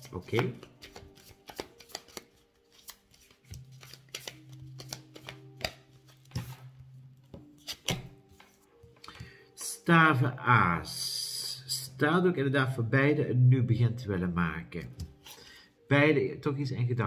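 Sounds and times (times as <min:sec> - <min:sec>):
cards being shuffled by hand: 0:00.0 - 0:06.7, 0:07.6 - 0:08.7.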